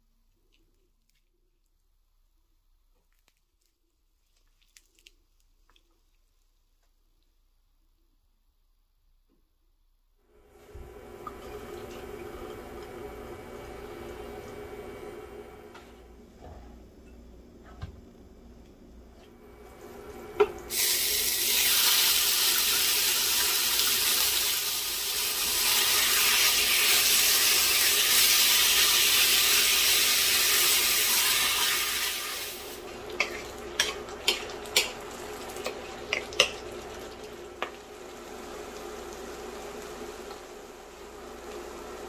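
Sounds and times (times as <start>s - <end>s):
meat sizzling in oil: 20.7s - 41.2s.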